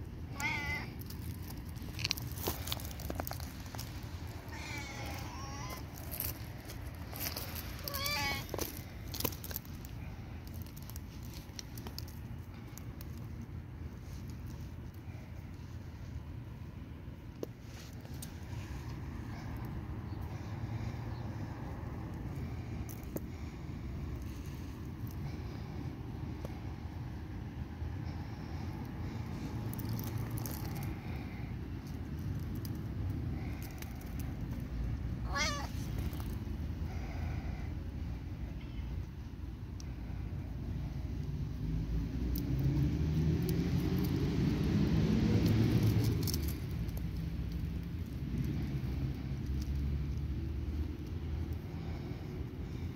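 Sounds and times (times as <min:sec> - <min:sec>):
low outdoor rumble: 0:00.0 - 0:52.9
cat meowing: 0:00.3 - 0:01.0, 0:04.5 - 0:05.9, 0:07.8 - 0:08.6, 0:35.2 - 0:35.9.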